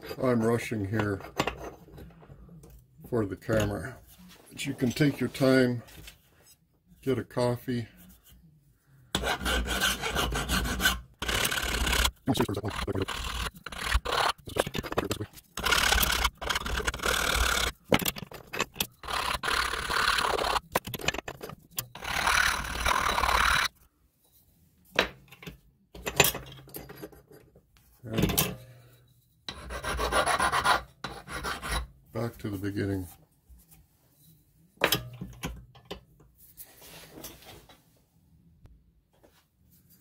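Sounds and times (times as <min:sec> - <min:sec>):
file scraping metal edges: 0:09.1 - 0:23.7, 0:29.5 - 0:31.9.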